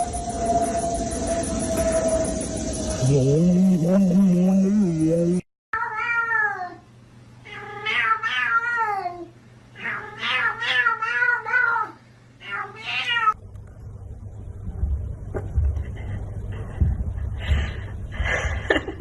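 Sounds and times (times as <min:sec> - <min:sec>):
low rumble: 0:00.0 - 0:05.4, 0:13.4 - 0:18.7
cat yowling: 0:05.8 - 0:06.8, 0:07.4 - 0:13.4.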